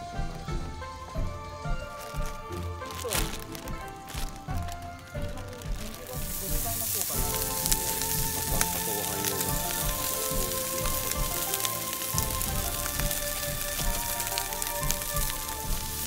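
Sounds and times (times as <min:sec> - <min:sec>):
rice sizzling in frying pan: 0:00.1 - 0:16.0.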